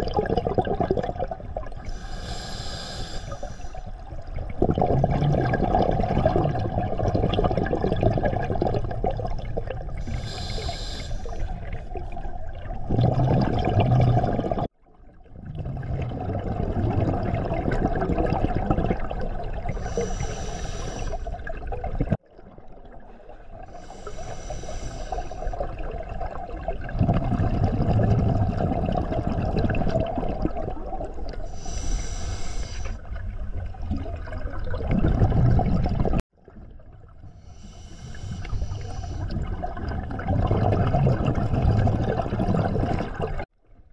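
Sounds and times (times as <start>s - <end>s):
exhaust bubbles streaming: 0.0s - 2.0s, 4.1s - 10.4s, 11.5s - 20.0s, 25.6s - 31.5s, 33.0s - 37.4s, 38.6s - 43.5s
regulator hissing inhale: 1.8s - 4.0s, 10.0s - 11.6s, 19.8s - 21.3s, 23.7s - 25.7s, 31.5s - 33.1s, 37.4s - 39.4s.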